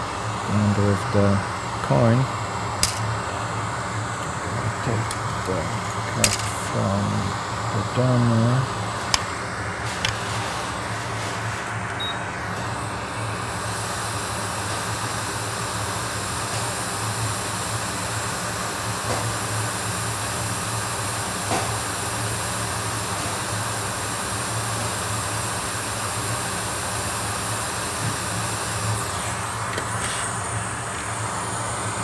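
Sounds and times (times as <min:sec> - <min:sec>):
constant low hum: 0:00.0 - 0:22.0
hot air blowing hiss: 0:00.0 - 0:32.0.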